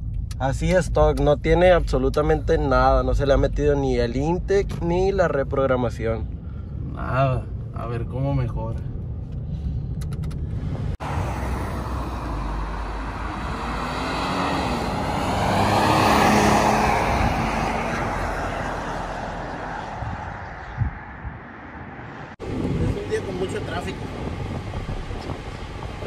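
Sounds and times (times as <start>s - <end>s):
engine and road noise inside cab: 0.0s - 26.0s
pickup truck driving past: 11.0s - 20.2s.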